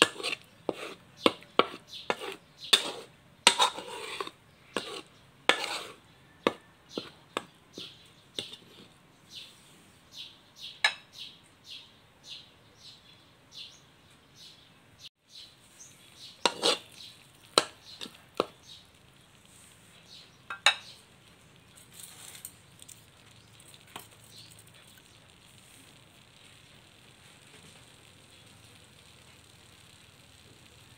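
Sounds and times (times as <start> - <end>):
metal spatula scraping a wok: 0.0 - 7.2, 7.8 - 9.0, 16.2 - 18.8.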